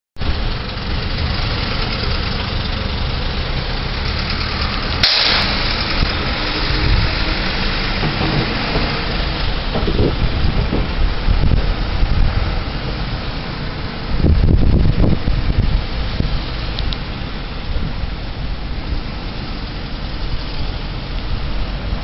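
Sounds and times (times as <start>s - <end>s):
heavy truck engines running: 0.2s - 22.0s
hiss burst: 4.6s - 9.7s
click: 16.8s - 17.0s.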